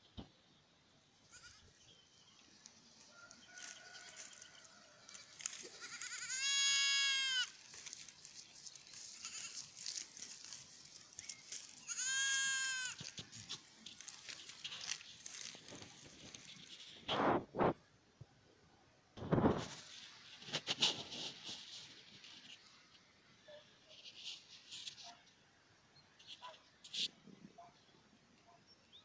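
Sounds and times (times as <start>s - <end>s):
small clicks and crackles: 2.5s - 17.2s, 19.2s - 22.8s
goats bleating: 5.4s - 7.6s, 9.1s - 9.9s, 11.8s - 13.2s.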